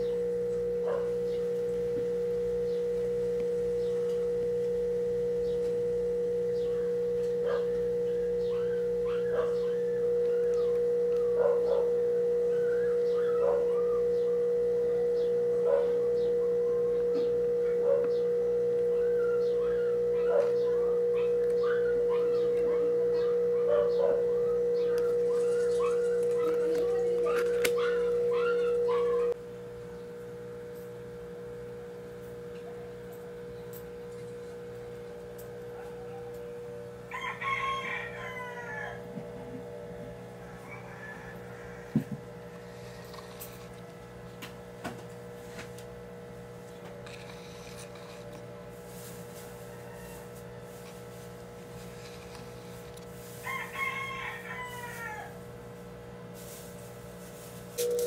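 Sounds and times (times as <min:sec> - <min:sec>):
steady hum: 0:00.0 - 0:58.0
rooster crowing: 0:06.6 - 0:29.4, 0:35.5 - 0:43.4, 0:48.9 - 0:55.5.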